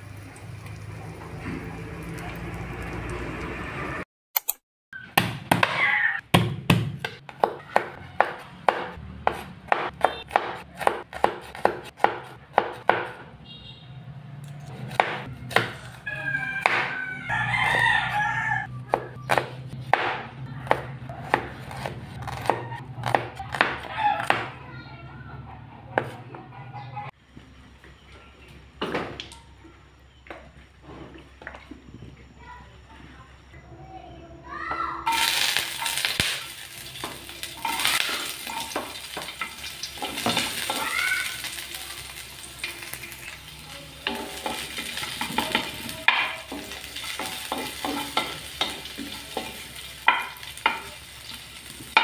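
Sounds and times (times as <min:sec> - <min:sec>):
knife chopping on wooden board: 0:06.4 - 0:13.2, 0:18.9 - 0:24.5
rooster crowing: 0:15.8 - 0:18.8.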